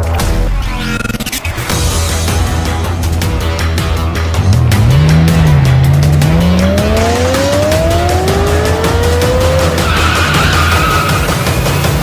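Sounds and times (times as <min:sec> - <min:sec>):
background music: 0:00.0 - 0:12.0
race car engine revving: 0:04.1 - 0:12.0.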